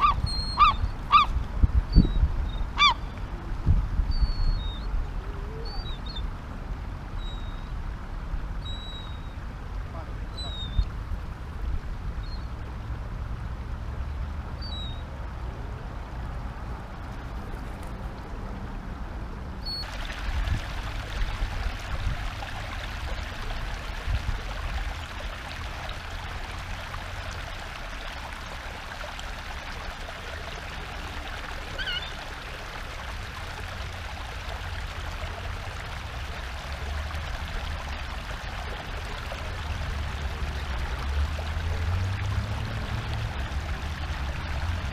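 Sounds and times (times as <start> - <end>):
wind rumble on microphone: 0.0 - 25.0
running water hiss: 19.6 - 44.9.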